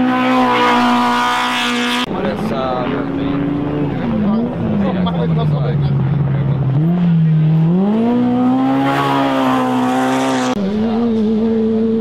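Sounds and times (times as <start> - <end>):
engine accelerating: 0.0 - 12.0.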